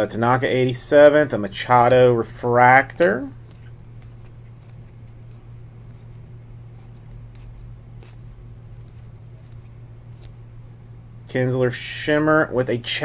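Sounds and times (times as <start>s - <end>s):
steady low hum: 0.0s - 13.0s
cards scraping and ticking: 2.9s - 10.5s.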